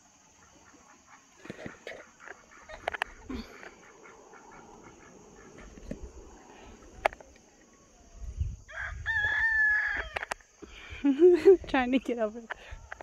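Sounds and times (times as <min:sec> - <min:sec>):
chickens and ducks calling: 0:00.2 - 0:07.0
rooster crowing: 0:08.6 - 0:10.4.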